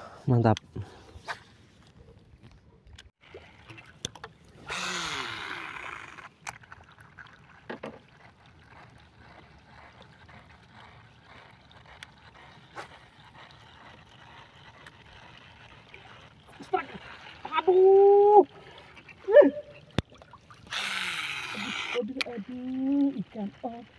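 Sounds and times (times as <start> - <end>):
fishing reel spool whirring: 3.3 - 20.0, 20.6 - 23.9
reel winding with faint ticking: 8.8 - 17.9, 20.7 - 23.9.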